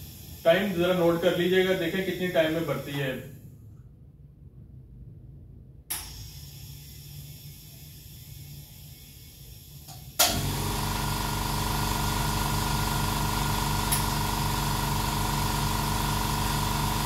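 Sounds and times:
tyre inflator humming: 0.0 - 3.2, 6.1 - 17.0
inflator click: 9.9 - 10.6, 13.8 - 14.3.

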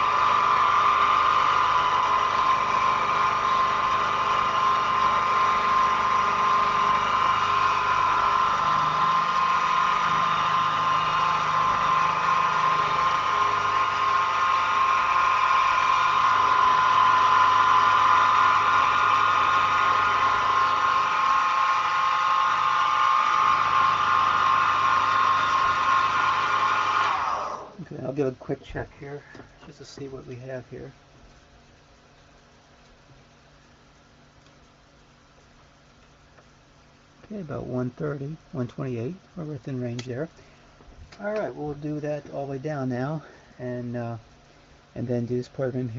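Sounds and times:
milling machine high whine: 0.0 - 31.0
motor hum: 0.0 - 45.9.

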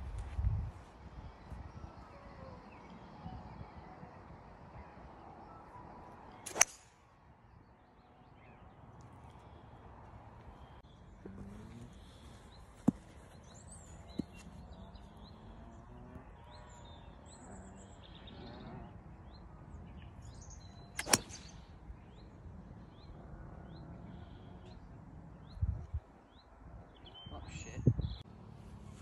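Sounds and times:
birds chirping: 0.9 - 29.0
golf club striking ball: 6.5 - 6.8, 21.0 - 21.5.

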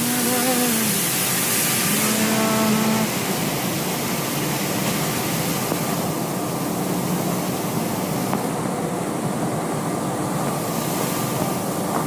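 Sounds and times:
industrial plant noise: 0.0 - 12.0
molten iron pouring roar: 0.0 - 12.0.

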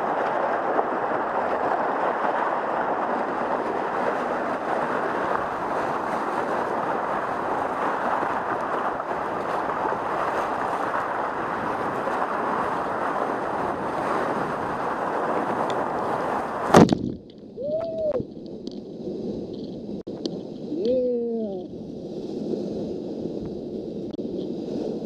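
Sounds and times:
whitewater rapids rushing: 0.0 - 16.7
wave crashing over boat: 0.0 - 17.2
person yelling excitedly: 17.6 - 18.2.

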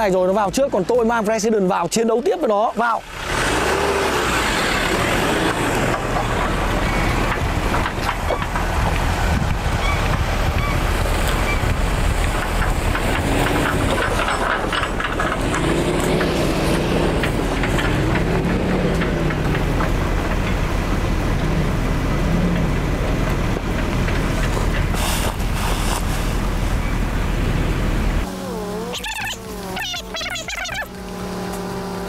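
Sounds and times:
pickup truck engine driving: 3.0 - 32.0
wind buffeting microphone: 4.9 - 14.7.

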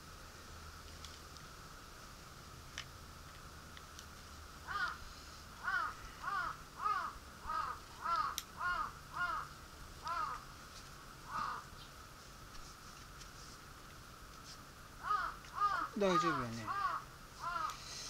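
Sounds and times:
crow cawing: 4.6 - 5.0, 5.6 - 10.5, 11.3 - 11.7, 15.0 - 17.9.

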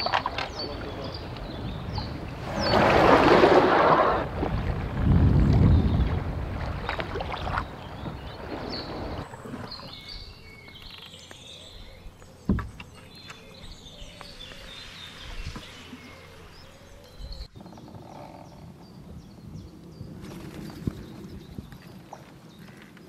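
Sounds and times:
birds chirping: 0.0 - 3.4, 5.4 - 23.0
river ambience: 0.0 - 23.0
wind and water noise: 0.0 - 23.0.

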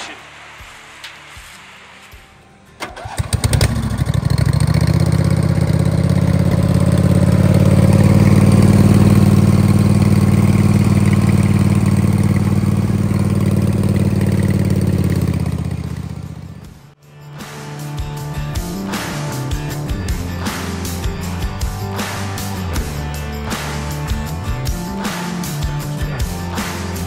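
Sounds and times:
mower engine cranking and running: 2.8 - 16.6.

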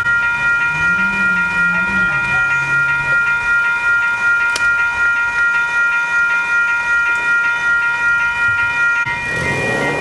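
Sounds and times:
railroad crossing bell ringing: 0.0 - 10.0.

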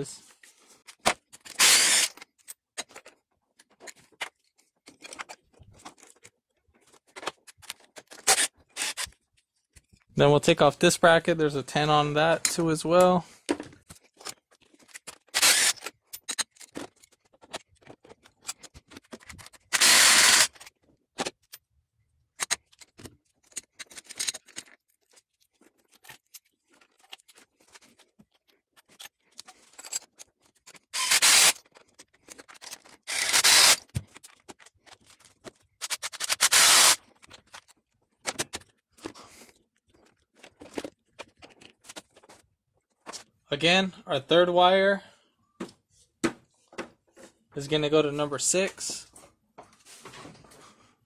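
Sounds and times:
clicks and clatter of tools: 0.3 - 10.1, 12.4 - 21.7, 22.3 - 43.4
cordless power tool bursts: 1.6 - 2.1, 15.4 - 15.8, 19.7 - 20.6, 31.0 - 31.6, 33.1 - 33.8, 36.1 - 37.0.

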